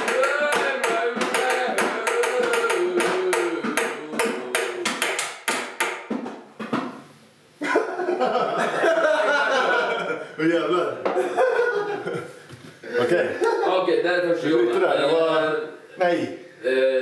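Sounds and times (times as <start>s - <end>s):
man singing wordlessly: 0.0s - 5.0s
voices: 0.0s - 5.0s
hand percussion on bongos: 0.0s - 6.4s.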